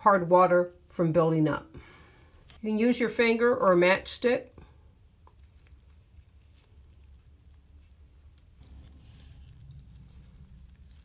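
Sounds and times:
low steady hum: 0.0 - 11.0
gloved fingers rubbing: 5.9 - 11.0.

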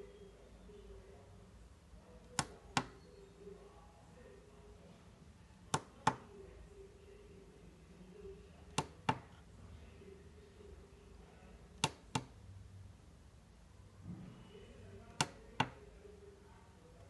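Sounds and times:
keypad buttons clicking: 2.3 - 3.0, 8.7 - 9.3, 11.8 - 12.3.

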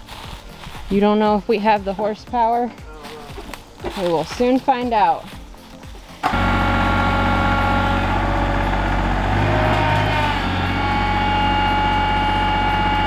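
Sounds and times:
tractor engine at high revs: 6.2 - 13.0.

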